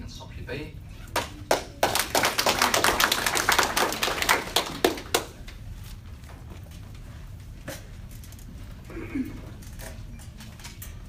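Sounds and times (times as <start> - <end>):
audience applauding: 1.2 - 5.4.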